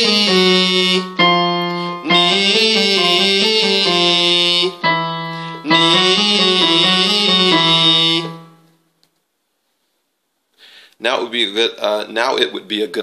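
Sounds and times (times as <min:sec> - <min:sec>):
held piano note: 0:00.0 - 0:08.6
man singing a scale: 0:00.0 - 0:08.6.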